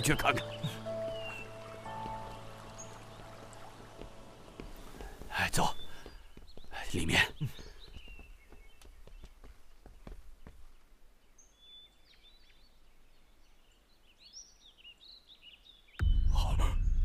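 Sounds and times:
birds chirping faintly: 0.0s - 17.0s
footsteps: 1.4s - 6.8s
loud low sound: 16.0s - 17.0s.

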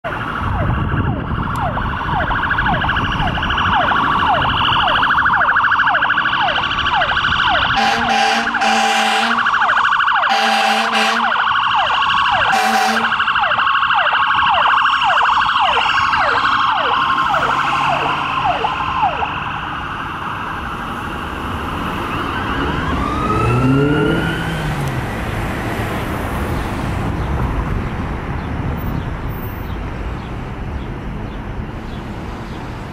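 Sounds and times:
ambulance siren yelping: 0.0s - 24.8s
deep air horn blasts: 7.6s - 9.6s, 10.3s - 11.4s, 12.5s - 13.3s.

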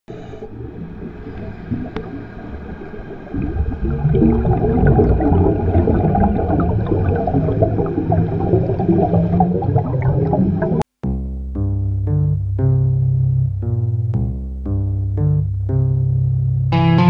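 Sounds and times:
underwater bubbling and rumble: 0.1s - 10.8s.

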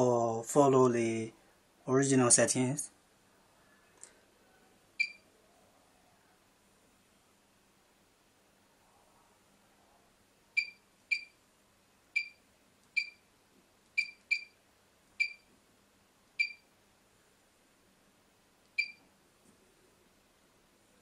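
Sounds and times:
short key press beeps: 13.0s - 13.2s, 18.8s - 19.0s.

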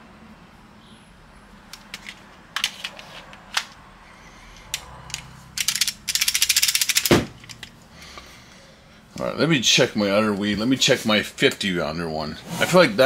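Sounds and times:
pistol handling clicks and knocks: 1.8s - 3.8s, 4.6s - 7.8s.

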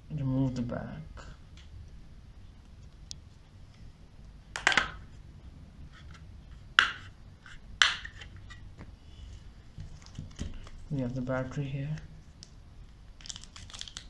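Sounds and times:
plastic scratching: 13.2s - 14.0s.

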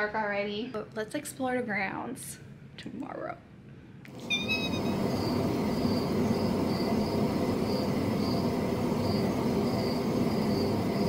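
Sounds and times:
crickets chirping: 4.2s - 11.0s.

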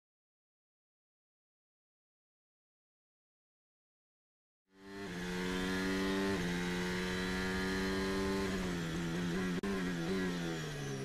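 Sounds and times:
racing car engine: 4.7s - 11.0s.

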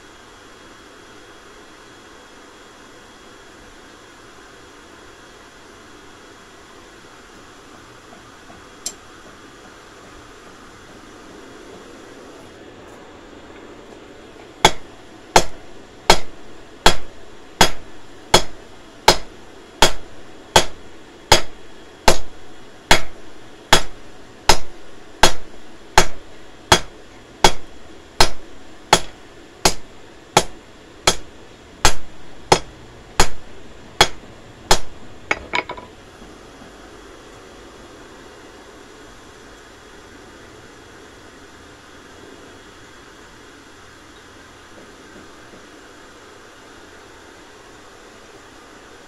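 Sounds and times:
hammer striking steel on anvil: 14.6s - 22.3s, 22.9s - 33.4s, 34.0s - 35.9s.

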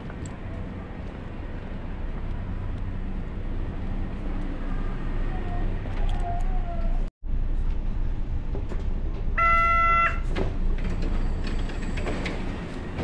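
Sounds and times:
train carriage noise: 0.0s - 9.4s, 10.1s - 13.0s
train doors sliding open: 10.3s - 13.0s.

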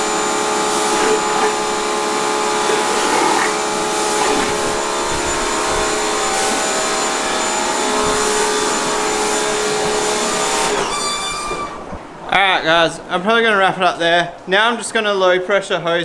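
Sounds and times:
pressure washer spraying water: 0.0s - 11.8s
motor whine: 0.0s - 12.0s.

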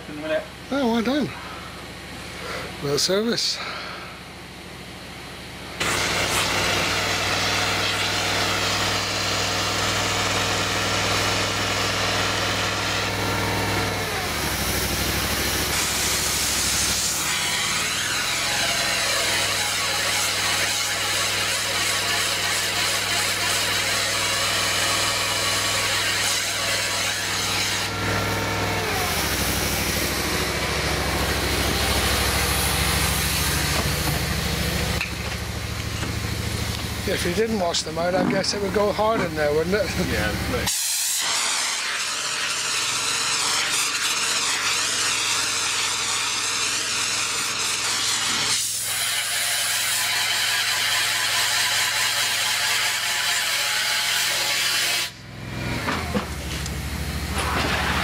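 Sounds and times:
insulation machine droning: 0.0s - 49.2s
water flushing through hoses: 40.4s - 53.5s.

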